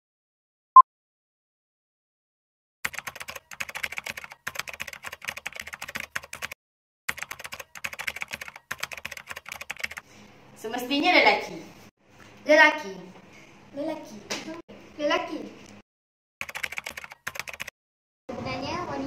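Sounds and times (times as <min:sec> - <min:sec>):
computer keyboard typing clicks: 0:02.9 - 0:10.0, 0:16.4 - 0:17.7.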